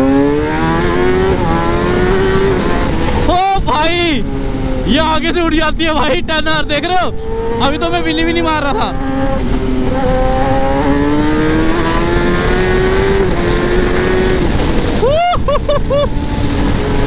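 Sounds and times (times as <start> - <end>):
motorcycle engine revving: 0.0 - 3.4, 6.5 - 15.1, 15.7 - 17.0
rushing wind: 0.0 - 17.0.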